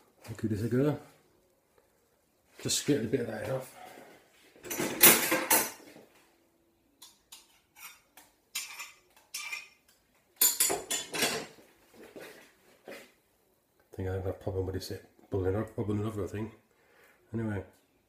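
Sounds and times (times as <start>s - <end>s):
glass and utensils clattering: 4.6s - 5.9s, 10.4s - 11.6s.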